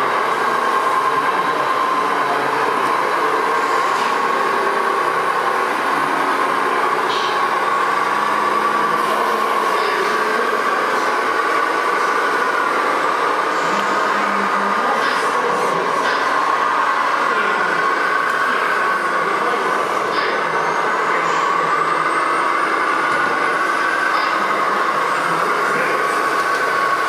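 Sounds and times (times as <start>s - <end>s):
model truck motor whine: 0.0s - 27.0s.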